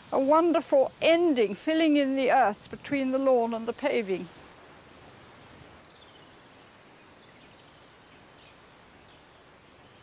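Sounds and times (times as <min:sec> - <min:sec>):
steady hiss: 0:00.0 - 0:10.0
faint bird chirps: 0:05.3 - 0:10.0.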